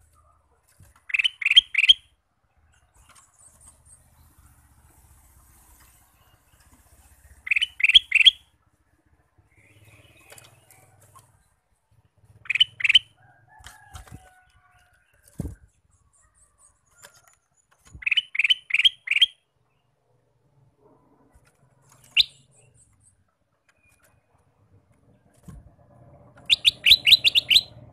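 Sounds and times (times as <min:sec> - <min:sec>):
wings fluttering: 0:00.0 - 0:01.9, 0:09.0 - 0:18.5, 0:21.0 - 0:23.0, 0:23.6 - 0:27.9
bird whistling: 0:01.1 - 0:02.1, 0:07.4 - 0:08.4, 0:12.4 - 0:13.1, 0:18.0 - 0:19.4, 0:22.1 - 0:22.5, 0:26.4 - 0:27.9.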